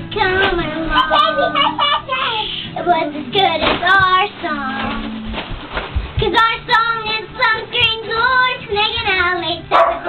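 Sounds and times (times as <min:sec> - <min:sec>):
girl singing: 0:00.0 - 0:05.4, 0:06.2 - 0:10.0.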